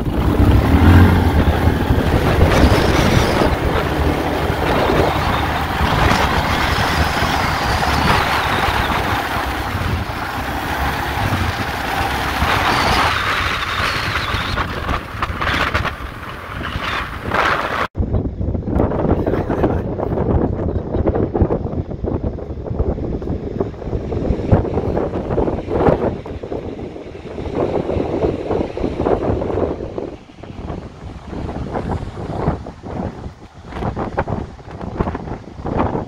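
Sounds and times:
quad bike engine running: 0.0s - 17.9s.

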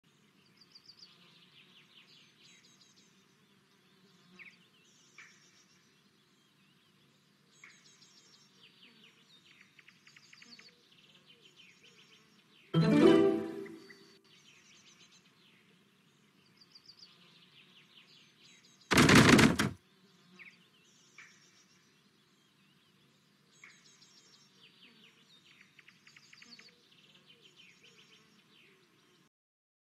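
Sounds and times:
small birds chirping: 0.0s - 12.8s, 13.5s - 29.3s
game sound effect: 12.8s - 14.2s.

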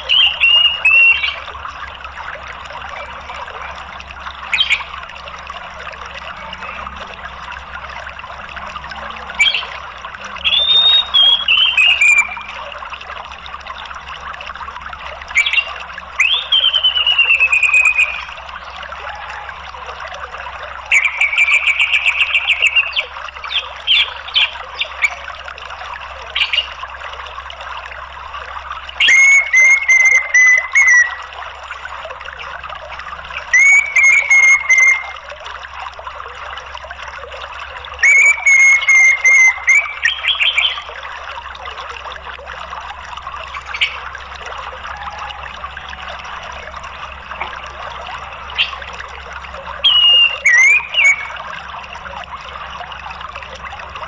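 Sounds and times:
thrush calling: 0.0s - 1.9s, 2.6s - 7.0s, 9.0s - 12.9s, 15.1s - 25.4s, 28.9s - 32.5s, 33.1s - 35.3s, 37.7s - 41.2s, 43.4s - 54.0s
flowing water rushing: 0.0s - 54.0s.

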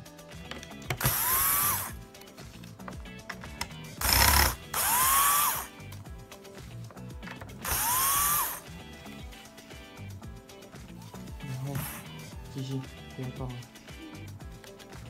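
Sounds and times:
electric screwdriver motor whine: 0.9s - 2.0s, 4.0s - 5.8s, 7.6s - 8.6s.

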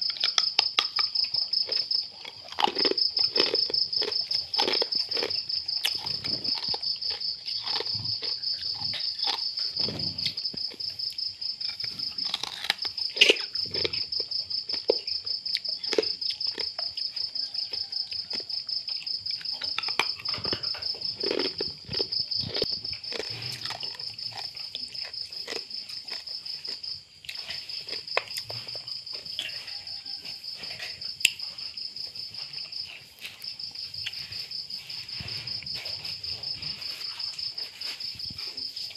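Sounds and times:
puppies chewing and lapping: 0.0s - 29.6s
crickets chirping: 0.0s - 38.9s.

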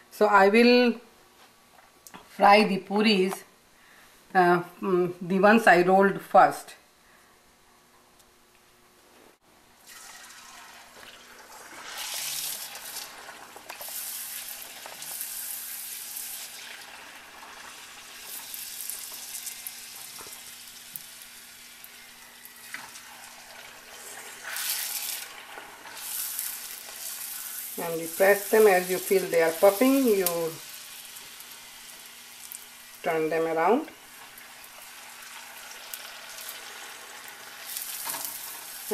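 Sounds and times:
dough sizzling in hot oil: 9.8s - 38.9s.

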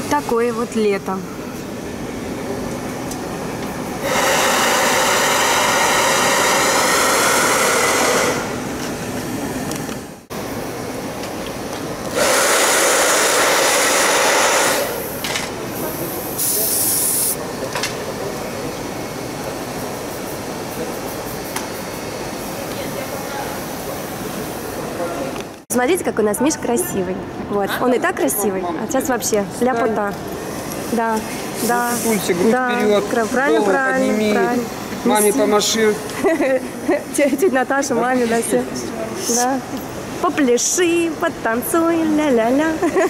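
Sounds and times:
steady background hum: 0.0s - 43.0s
hair dryer blowing: 4.0s - 8.7s, 12.1s - 15.2s
short high hiss: 15.9s - 17.4s.

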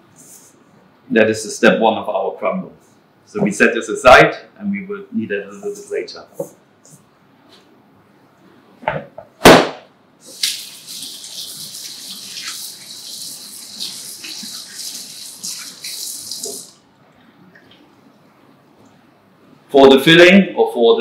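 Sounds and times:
faucet running: 10.2s - 16.8s
hands rinsed under water: 10.2s - 16.8s.

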